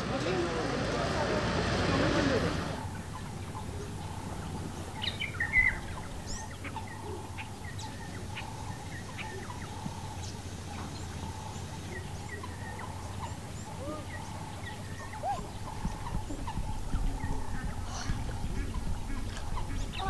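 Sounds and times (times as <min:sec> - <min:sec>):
small birds chirping: 0:00.0 - 0:20.0.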